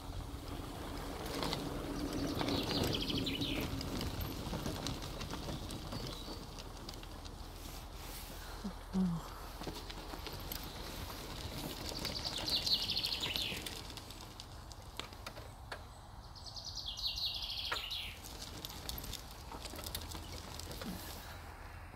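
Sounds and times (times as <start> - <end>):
songbird trilling: 16.4 - 18.2.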